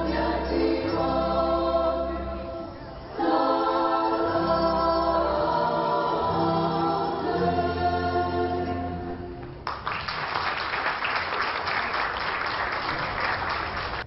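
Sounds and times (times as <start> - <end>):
group singing in harmony: 0.0 - 9.4
applause: 9.6 - 14.0.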